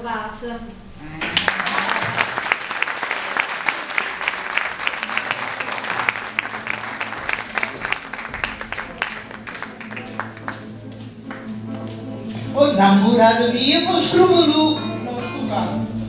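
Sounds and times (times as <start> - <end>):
audience applauding: 1.2 - 11.8
instruments playing: 1.2 - 16.0.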